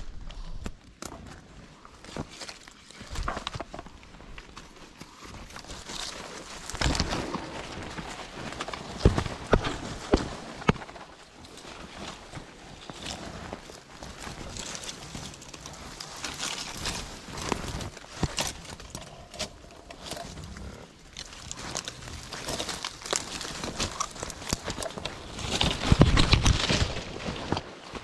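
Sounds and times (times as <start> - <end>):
twigs crackling underfoot: 0.0 - 28.0
footsteps crunching dry leaves: 19.6 - 28.0.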